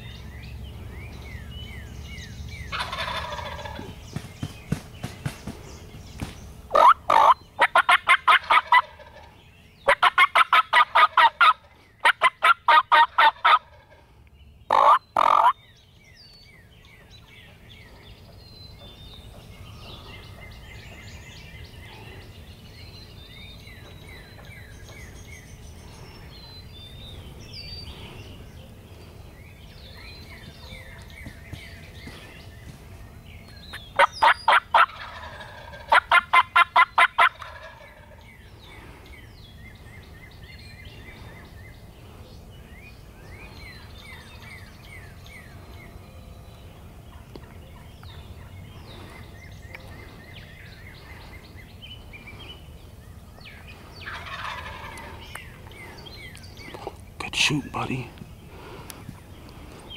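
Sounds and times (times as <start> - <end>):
faint songbird chirps: 0.0 - 59.9
wild turkey gobbling: 2.7 - 4.0, 6.7 - 9.3, 9.9 - 14.0, 14.7 - 15.6, 34.0 - 38.3, 54.0 - 55.8.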